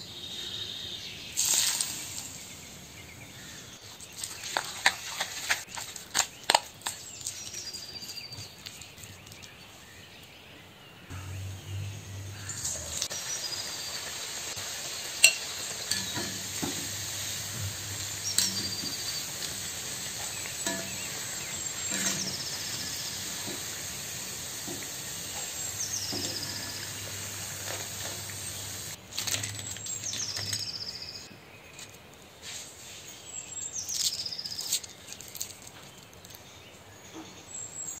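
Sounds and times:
batter sizzling in hot oil: 0:01.4 - 0:02.7, 0:11.2 - 0:29.0.

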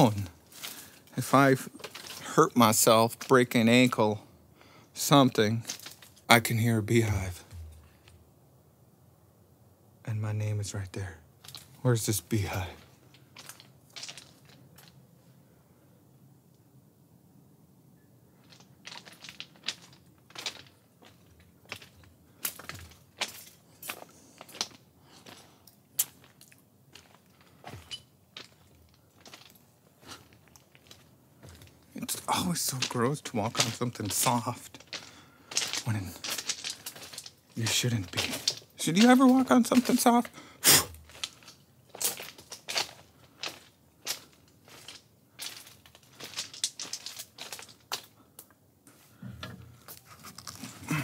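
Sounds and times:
sharp crack underfoot: 0:00.0 - 0:04.0, 0:05.0 - 0:06.3, 0:07.0 - 0:08.2, 0:11.4 - 0:11.8, 0:12.4 - 0:15.0, 0:18.3 - 0:51.0
footsteps crunching on gravel: 0:00.0 - 0:04.2, 0:05.0 - 0:06.3, 0:11.4 - 0:15.0, 0:18.4 - 0:48.2.

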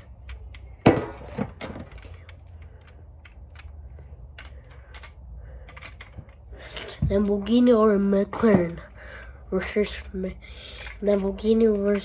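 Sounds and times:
toy car clicking in hands: 0:00.0 - 0:00.8, 0:01.5 - 0:06.9, 0:10.2 - 0:12.0.

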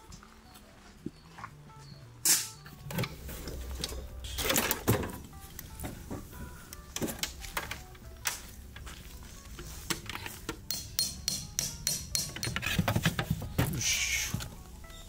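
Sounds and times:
background music: 0:00.0 - 0:15.0
camp gear knocking and clattering: 0:02.2 - 0:13.8.

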